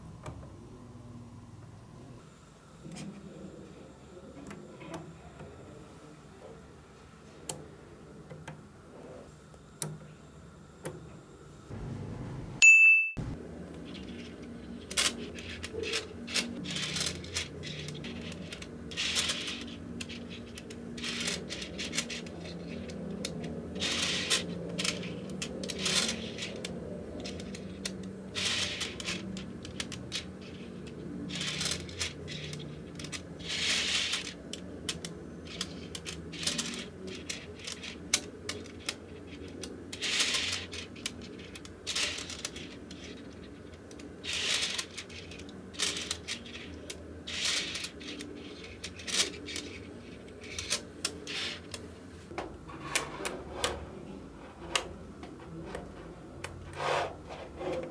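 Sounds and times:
magnetic balls clicking: 13.7s - 51.9s.

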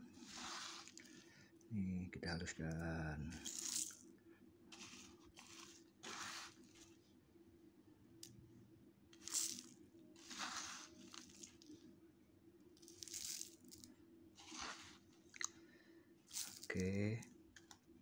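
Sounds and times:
faint steady hum: 0.0s - 18.0s
spatula scraping gritty mixture: 0.1s - 1.2s, 4.7s - 6.8s, 10.2s - 11.6s, 14.4s - 15.0s.

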